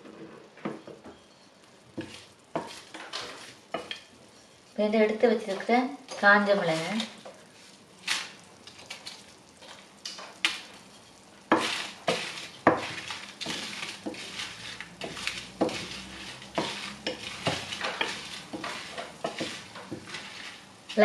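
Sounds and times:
light sizzle: 0:00.0 - 0:21.0
spatula scraping spices in pan: 0:01.3 - 0:04.8, 0:10.4 - 0:21.0.

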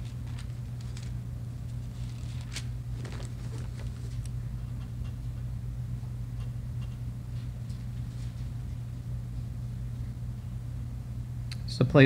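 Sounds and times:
steady low hum: 0:00.0 - 0:12.0
faint rustles: 0:01.8 - 0:04.3.

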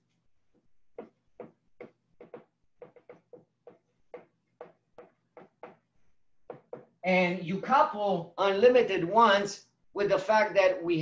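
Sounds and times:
marker writing on whiteboard: 0:00.0 - 0:07.0.

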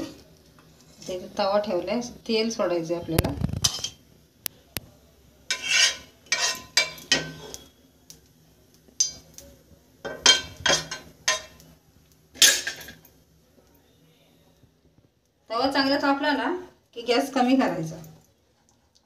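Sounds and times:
spoon scraping a frying pan: 0:03.5 - 0:04.0, 0:05.5 - 0:07.8, 0:10.1 - 0:11.6.

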